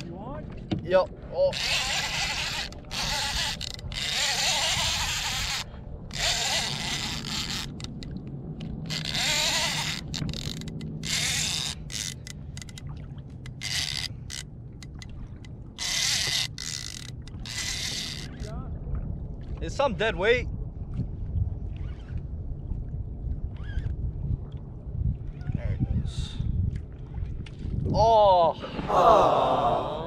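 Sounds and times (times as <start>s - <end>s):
fishing reel drag screaming: 1.5s - 8.0s, 8.8s - 12.8s, 13.5s - 14.4s, 15.8s - 18.5s.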